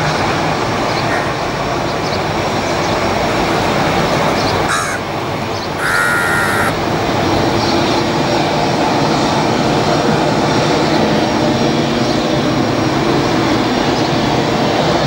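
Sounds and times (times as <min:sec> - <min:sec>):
jet engines: 0:00.0 - 0:15.0
crow cawing: 0:01.1 - 0:01.4, 0:04.7 - 0:05.1, 0:05.8 - 0:06.8.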